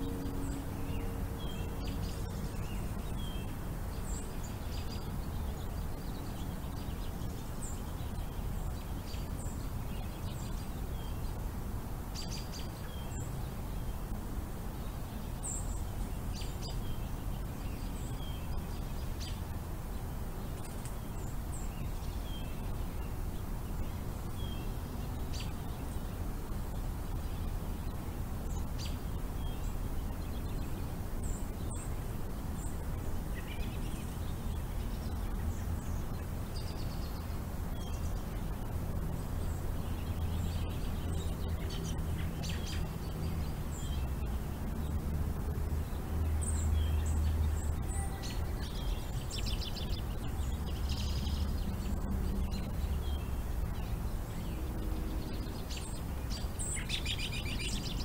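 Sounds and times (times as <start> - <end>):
bird chirps and calls: 46.3 - 58.0.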